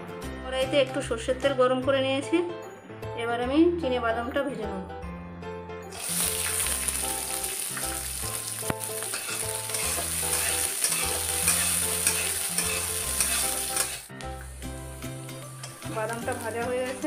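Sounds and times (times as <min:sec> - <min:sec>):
peanuts sizzling in oil: 0:05.9 - 0:17.0
metal spatula scraping pan: 0:09.0 - 0:14.1.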